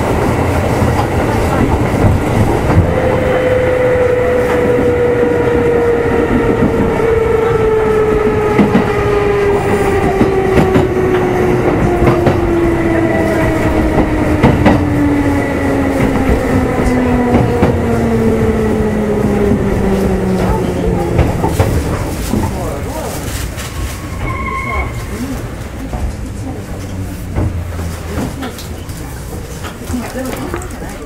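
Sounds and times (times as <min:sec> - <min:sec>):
wheels clacking over rail joints: 0:25.1 - 0:31.0.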